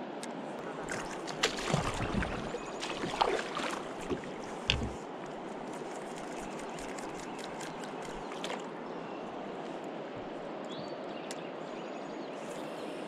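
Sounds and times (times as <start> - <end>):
paddle splashing and knocking hull: 0.7 - 5.1.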